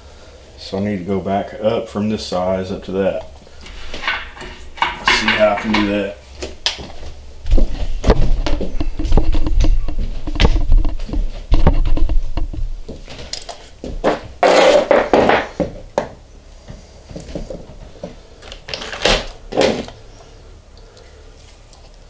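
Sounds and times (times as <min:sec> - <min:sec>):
metal pipe fittings clinking: 0:03.6 - 0:06.1.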